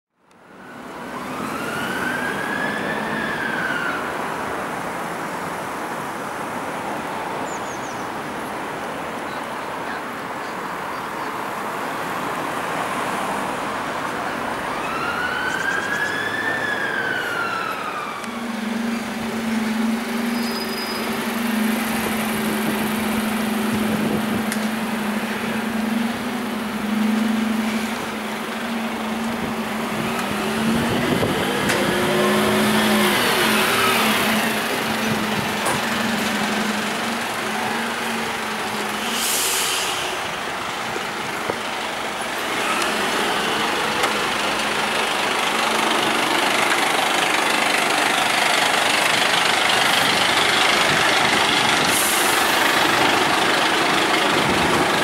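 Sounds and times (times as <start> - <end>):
street noise: 0.1 - 55.0
emergency vehicle siren wailing: 0.4 - 5.8, 13.5 - 39.4, 40.1 - 55.0
heavy vehicle engine drone: 9.7 - 55.0.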